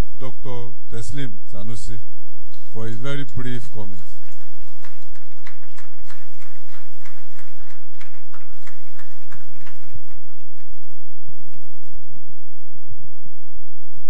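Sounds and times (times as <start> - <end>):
people handclapping: 3.4 - 12.2.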